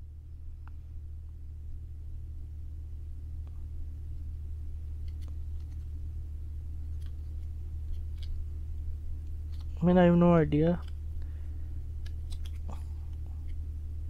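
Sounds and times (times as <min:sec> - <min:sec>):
steady low hum: 0:00.0 - 0:14.0
fingers peeling plastic film: 0:05.0 - 0:05.9, 0:06.9 - 0:08.4, 0:09.2 - 0:09.8, 0:12.0 - 0:12.8.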